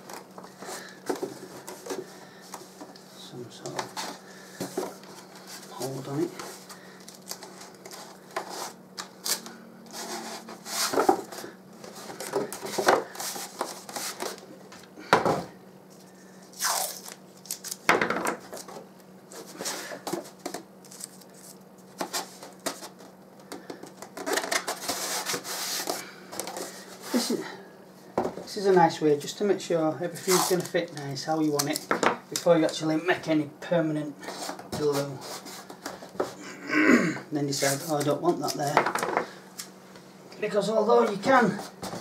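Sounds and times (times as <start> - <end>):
masking tape pulled and torn: 9.0 - 9.5, 16.5 - 17.9.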